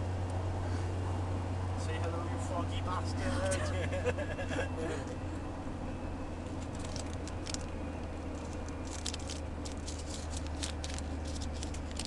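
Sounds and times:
van engine drone and road noise: 0.0 - 12.0
small clicks and rattles: 6.6 - 12.0.

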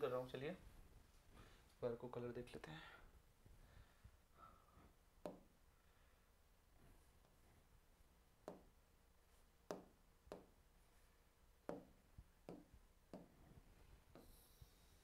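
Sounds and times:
low room hum: 0.0 - 15.0
taps on a touchscreen: 5.2 - 5.5, 8.4 - 8.7, 9.7 - 10.6, 11.6 - 13.4.

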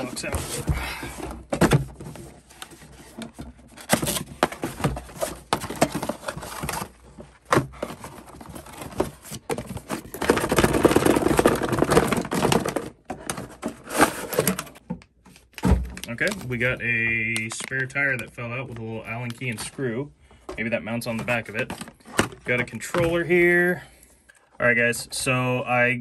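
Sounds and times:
cardboard scraping and rustling: 0.0 - 14.8.

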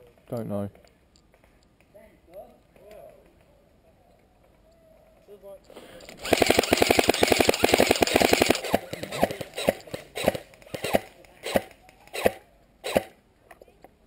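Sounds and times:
airsoft rifle firing: 6.0 - 13.2.

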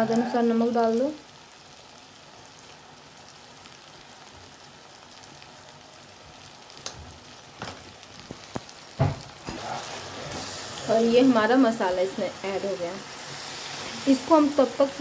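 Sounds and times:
masala sizzling in hot oil: 0.0 - 15.0
sharp clicks and crackles: 6.8 - 8.8
thump: 9.0 - 9.6.

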